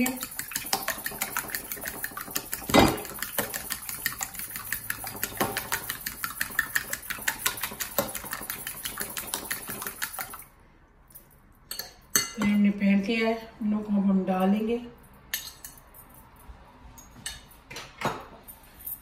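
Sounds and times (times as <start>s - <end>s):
fork clicking against bowl: 0.0s - 10.4s.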